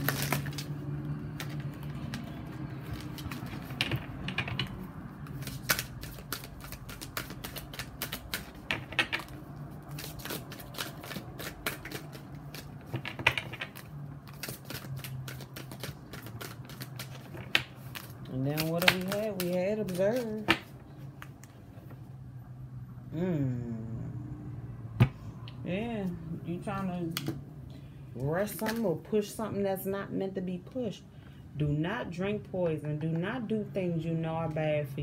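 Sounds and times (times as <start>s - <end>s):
cards being shuffled: 0.0s - 21.9s.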